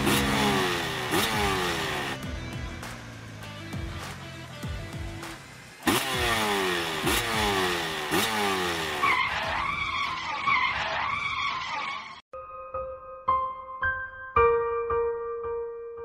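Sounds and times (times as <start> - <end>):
motorbike engine: 0.0 - 10.5
tyres screeching: 8.1 - 12.2.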